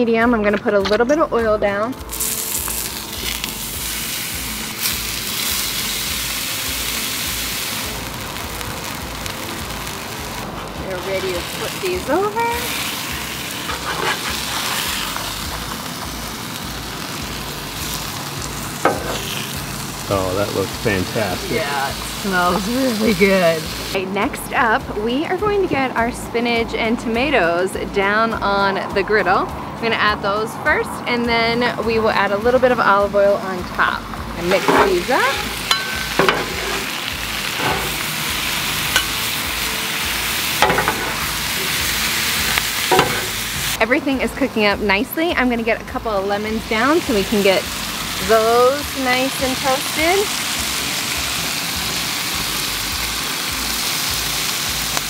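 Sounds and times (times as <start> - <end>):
fish sizzling on a griddle: 2.0 - 24.1, 34.4 - 55.0
metal spatula flipping: 13.5 - 15.8, 18.8 - 19.4, 34.4 - 38.1, 38.8 - 39.4, 40.5 - 41.8, 42.4 - 43.5.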